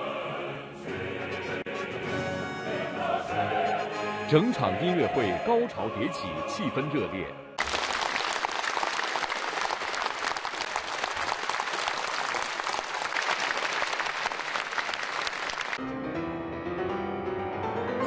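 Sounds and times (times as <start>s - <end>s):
audience applauding: 7.6s - 15.8s.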